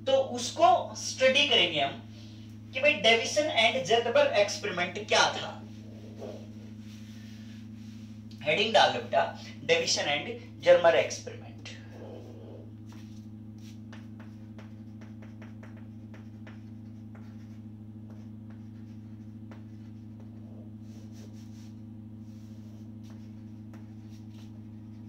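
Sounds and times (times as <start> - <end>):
low electrical hum: 0.0 - 25.0
chalk tapping and scratching: 12.9 - 25.0.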